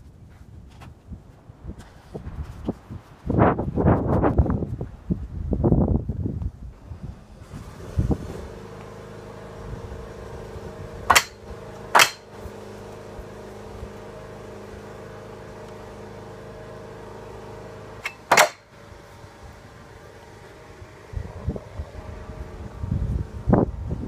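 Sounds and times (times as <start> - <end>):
steady low hum: 0.0 - 24.0
metal bar knocking on wood: 11.1 - 11.4, 12.0 - 12.3, 18.0 - 18.7.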